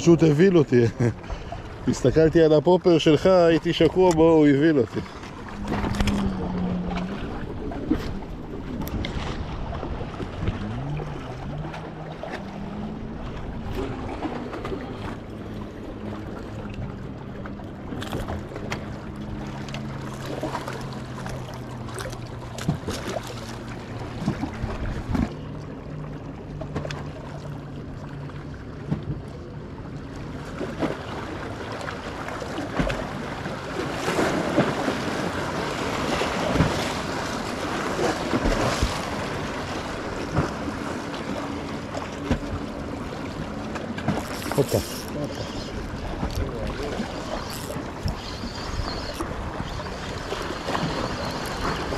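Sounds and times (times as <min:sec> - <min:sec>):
low steady hum: 0:00.0 - 0:32.4
lake water lapping: 0:00.0 - 0:51.9
wind on microphone: 0:05.4 - 0:11.8
fishing tackle clicks and knocks: 0:44.0 - 0:45.2.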